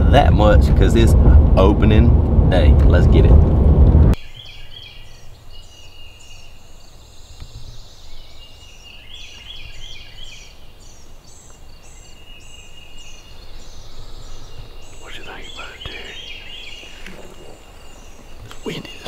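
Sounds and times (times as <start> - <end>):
low steady rumble: 0.0 - 4.2
songbirds singing: 4.2 - 19.0.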